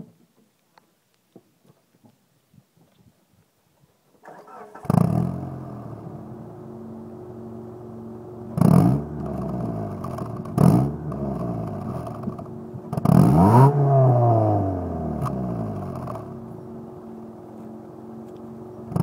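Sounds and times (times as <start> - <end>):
car engine idling: 4.2 - 19.0
engine revving in throttle blips: 4.2 - 19.0.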